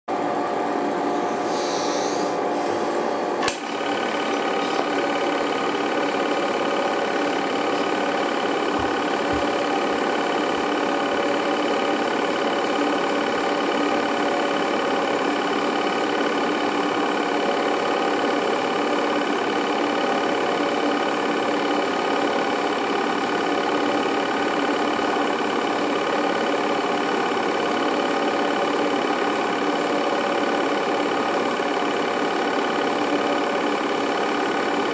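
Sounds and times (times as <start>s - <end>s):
film projector whirring and clattering: 2.5s - 34.9s
sharp click: 3.4s - 3.7s.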